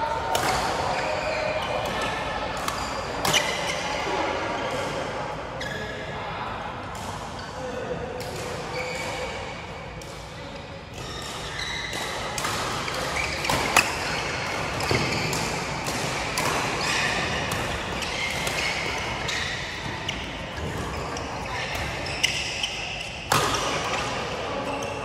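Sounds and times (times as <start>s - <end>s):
racket hitting shuttlecock: 10.9s - 24.2s
shoes squeaking on court floor: 12.9s - 15.8s, 16.4s - 23.3s.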